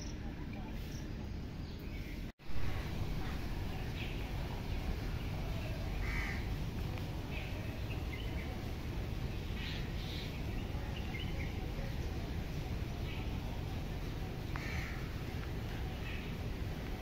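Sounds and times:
birds calling: 0.0 - 17.0
low background noise: 0.0 - 17.0
crow-like caws: 6.0 - 6.5, 14.5 - 15.1.

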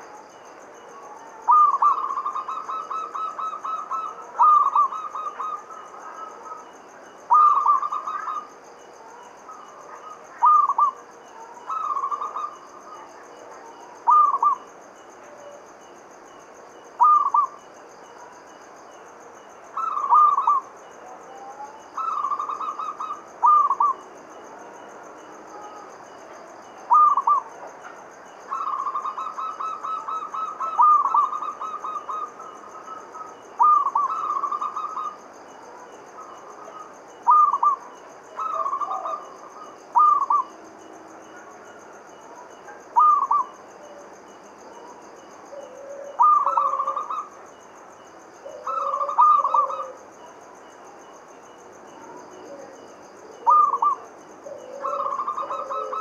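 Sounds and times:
dove cooing: 1.0 - 6.7, 7.3 - 8.5, 9.8 - 13.1, 14.0 - 14.7, 17.0 - 17.6, 19.8 - 20.7, 21.3 - 24.0, 26.9 - 27.5, 28.5 - 40.6, 42.7 - 44.1, 45.5 - 47.4, 48.4 - 50.1, 52.0 - 56.0.

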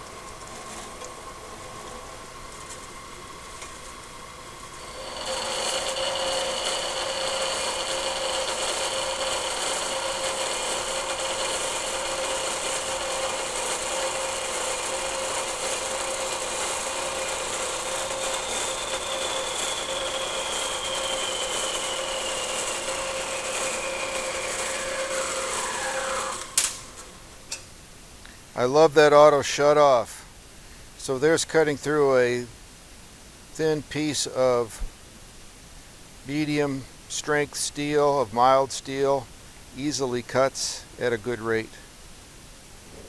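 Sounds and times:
bandsaw cutting steel: 4.7 - 27.1.

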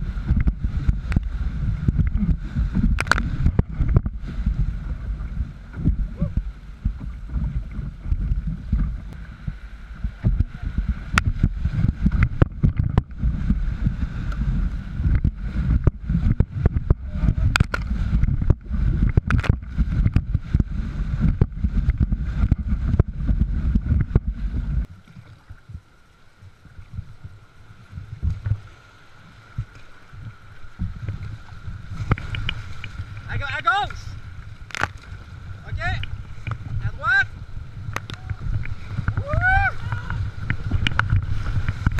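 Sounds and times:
knocks and splashes on hull: 0.0 - 28.8, 29.4 - 41.9
wind rumble on microphone: 0.0 - 41.9.

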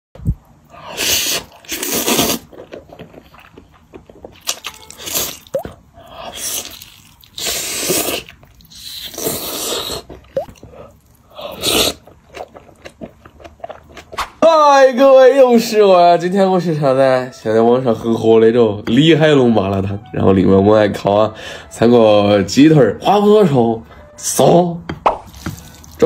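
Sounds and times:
slurping noodles: 0.8 - 3.5, 4.8 - 10.7, 11.3 - 12.6
biting and chewing: 1.5 - 5.8, 11.9 - 14.4.

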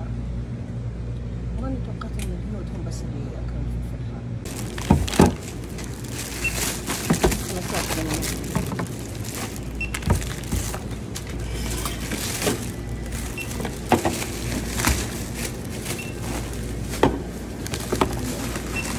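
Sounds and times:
steady low hum: 0.0 - 18.9
cans and packets set down: 4.5 - 18.9
barcode scanner beeps: 6.4 - 6.7, 9.8 - 10.1, 13.3 - 13.6.

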